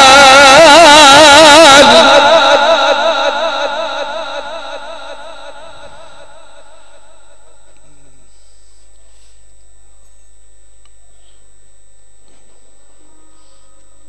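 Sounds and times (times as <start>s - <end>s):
melodic recitation with echo: 0.0s - 8.1s
low electrical hum: 0.0s - 14.0s.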